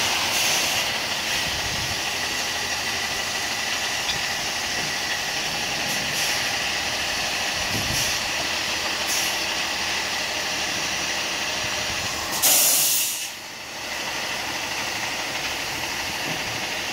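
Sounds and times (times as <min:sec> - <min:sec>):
truck engine running: 0:00.0 - 0:16.9
air hiss burst: 0:00.2 - 0:00.8, 0:12.3 - 0:13.4.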